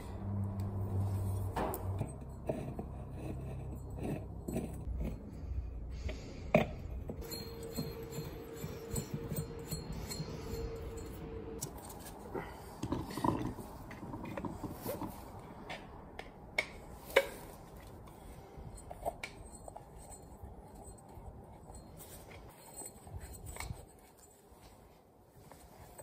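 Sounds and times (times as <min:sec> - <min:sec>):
small metal parts clinking: 0:07.0 - 0:12.3
faint steady tone: 0:07.2 - 0:12.6.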